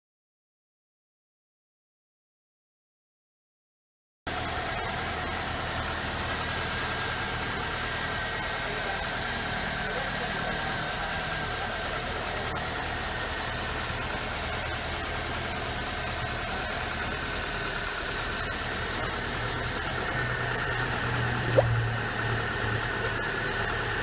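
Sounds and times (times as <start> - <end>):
car engine idling: 4.3 - 24.0
air bubble pop in coolant: 21.2 - 22.0.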